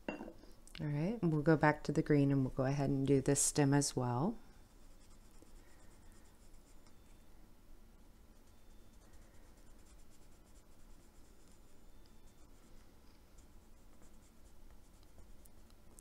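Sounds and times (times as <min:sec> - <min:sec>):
pencil scratching on paper: 0:08.4 - 0:12.6, 0:13.4 - 0:15.4.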